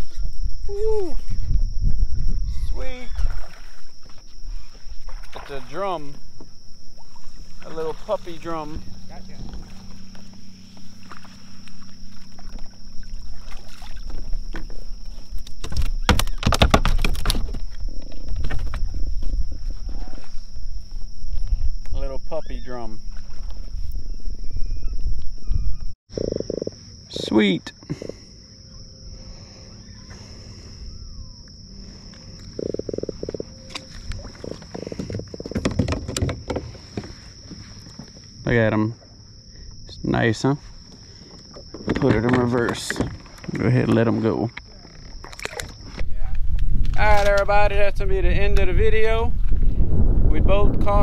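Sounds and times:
low rumble: 0:06.1 - 0:13.4, 0:46.0 - 0:51.0
fish splashing and knocking: 0:32.8 - 0:37.6.

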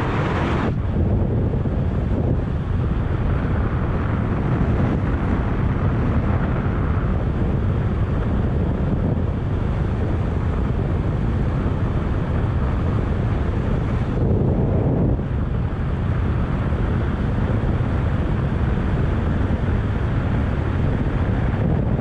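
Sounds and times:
road noise: 0:00.0 - 0:22.0
wind buffeting microphone: 0:00.0 - 0:22.0.

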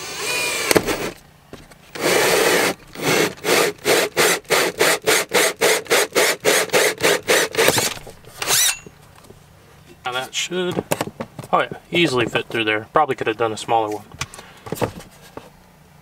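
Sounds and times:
drill cutting through wood: 0:00.0 - 0:01.2, 0:01.9 - 0:08.8.

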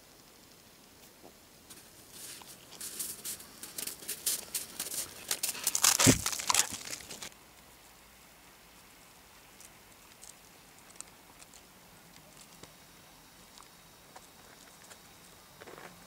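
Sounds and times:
paws crunching through snow: 0:01.7 - 0:07.3.

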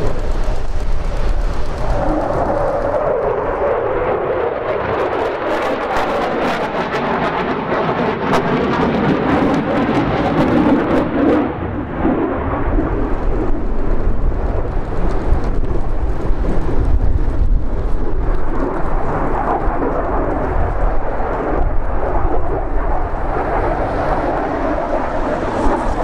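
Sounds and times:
sharp engine crackle: 0:00.0 - 0:03.7
jet engines roaring: 0:00.0 - 0:26.0.

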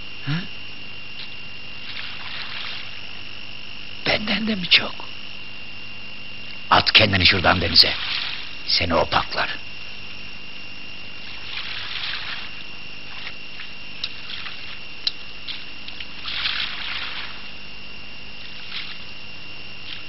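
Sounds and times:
high-pitched whine: 0:00.0 - 0:20.0
sea water lapping: 0:01.8 - 0:03.2, 0:07.3 - 0:08.8, 0:11.2 - 0:20.0.

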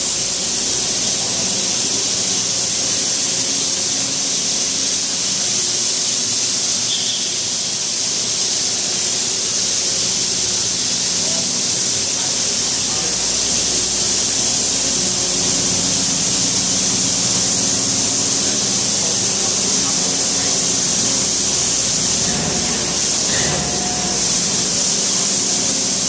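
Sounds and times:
rotary broom hissing on concrete: 0:00.0 - 0:26.0
engine running: 0:12.2 - 0:26.0.

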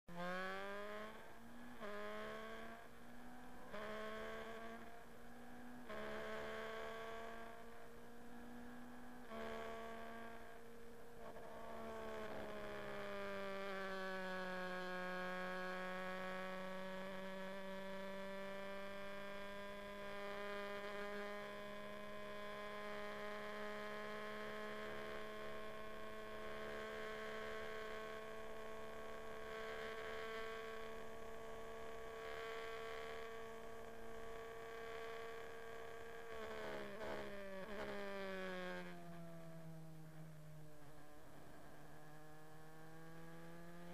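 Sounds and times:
racing engine accelerating: 0:00.1 - 0:40.1, 0:40.8 - 0:43.9.

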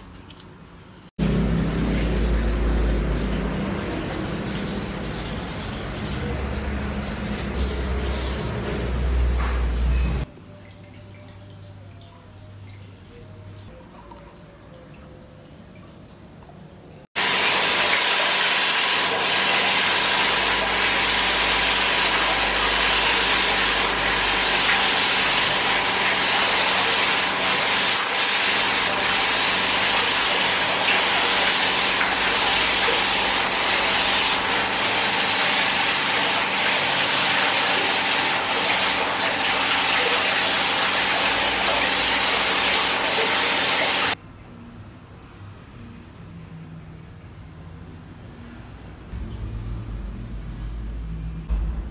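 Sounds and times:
steady hum: 0:01.2 - 0:10.3
paint spray gun hissing: 0:17.2 - 0:44.2.

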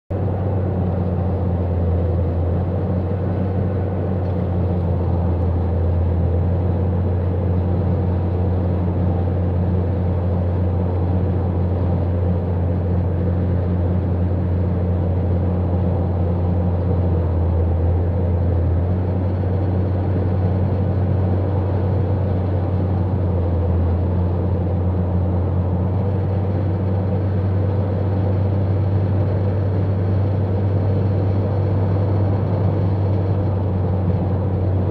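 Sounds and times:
car road noise hum and hiss: 0:00.1 - 0:34.9.

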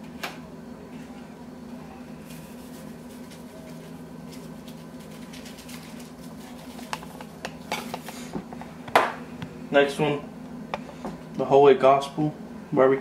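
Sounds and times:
steady low hum: 0:00.0 - 0:13.0
spice shaker ticks and rustles: 0:02.2 - 0:08.2.

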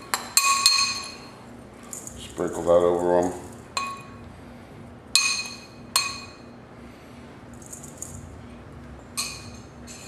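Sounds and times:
spoon clinking against bowl: 0:00.0 - 0:01.3, 0:03.2 - 0:04.2, 0:05.2 - 0:06.4, 0:09.2 - 0:10.0.

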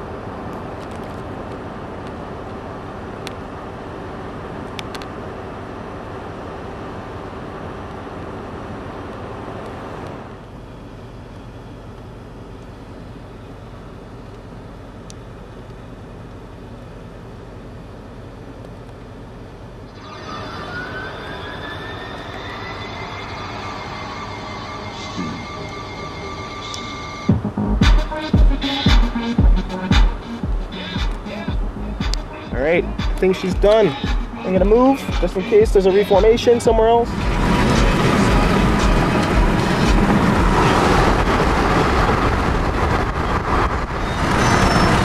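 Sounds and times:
rumbling hum with low drone: 0:00.0 - 0:45.0
rising synth tone: 0:19.8 - 0:34.8
electronic music: 0:19.9 - 0:41.3.

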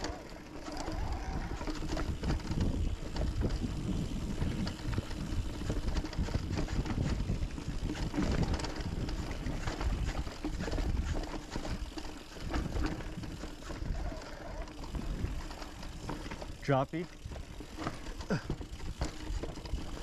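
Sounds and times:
mountain bike knocking and rattling: 0:00.0 - 0:20.0
wind on microphone: 0:00.8 - 0:11.2.

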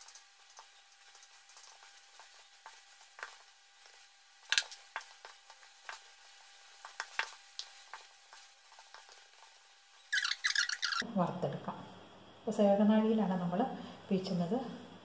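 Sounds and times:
hands kneading dough in metal bowl: 0:00.0 - 0:09.8.

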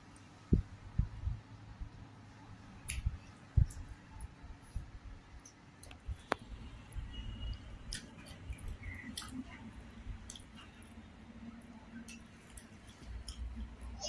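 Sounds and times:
fingers mixing crisp food: 0:06.9 - 0:11.0, 0:11.9 - 0:13.9
chewing: 0:07.9 - 0:11.0, 0:12.0 - 0:13.8.

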